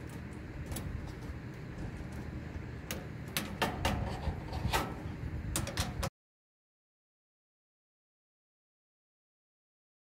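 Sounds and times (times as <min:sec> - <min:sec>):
low steady rumble: 0:00.0 - 0:06.1.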